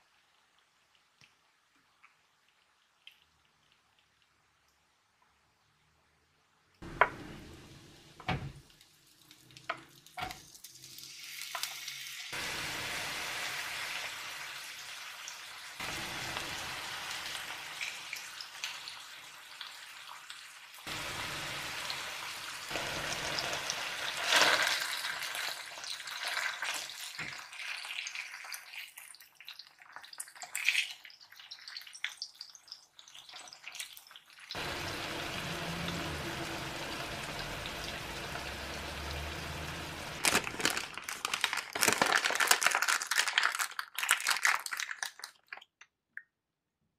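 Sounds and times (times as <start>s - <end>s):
fish sizzling in a frying pan: 8.7s - 41.6s.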